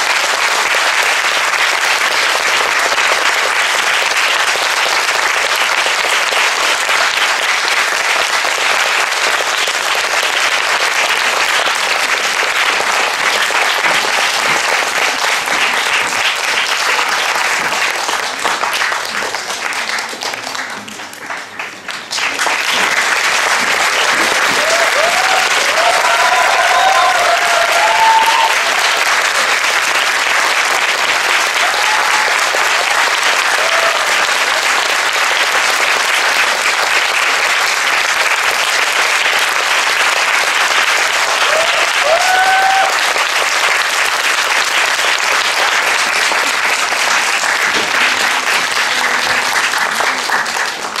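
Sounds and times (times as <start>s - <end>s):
audience applauding: 0.0s - 51.0s
high cheers: 23.9s - 29.8s, 31.1s - 35.6s, 41.0s - 44.2s.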